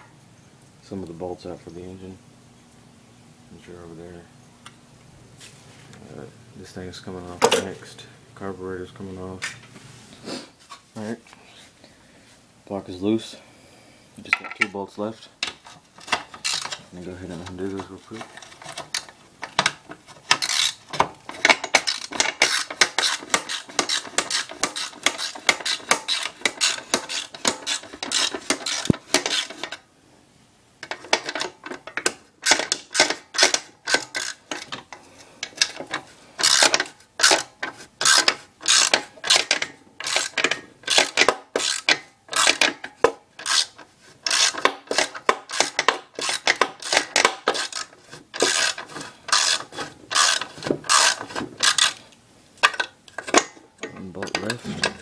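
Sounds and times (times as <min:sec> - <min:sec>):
socket ratchet clicking: 0:35.5 - 0:52.0.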